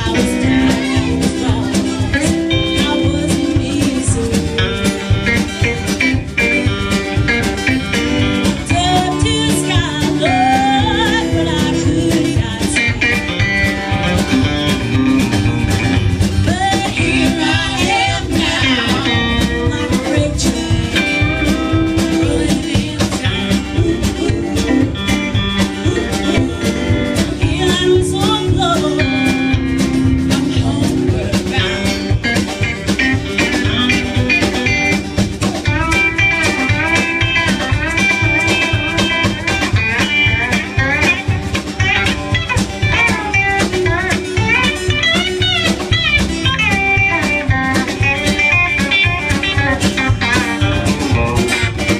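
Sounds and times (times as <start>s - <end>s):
woman singing: 0.0s - 5.7s, 8.5s - 13.5s, 16.2s - 34.8s, 42.0s - 50.9s
live band playing: 0.0s - 51.9s.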